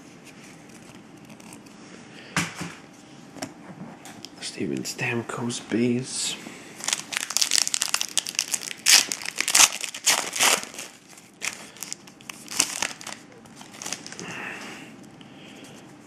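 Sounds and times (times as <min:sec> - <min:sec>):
foil wrapper crinkling: 0:06.8 - 0:14.4.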